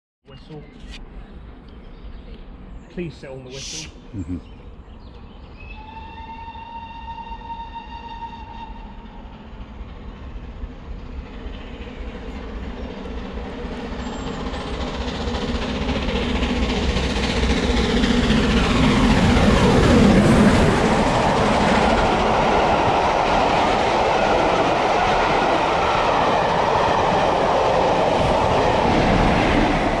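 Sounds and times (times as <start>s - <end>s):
steam locomotive passing: 5.7s - 30.0s
steam whistle: 5.8s - 9.0s
coach wheel noise: 13.6s - 30.0s.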